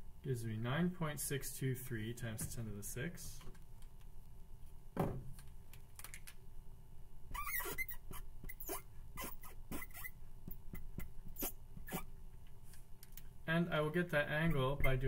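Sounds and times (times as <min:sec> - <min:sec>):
marker squeaking on board: 0:07.3 - 0:12.1.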